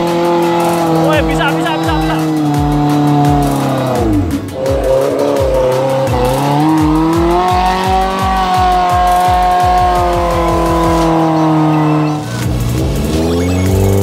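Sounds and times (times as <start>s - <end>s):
held synth notes: 0.0s - 14.0s
kick drum beats: 0.9s - 11.2s.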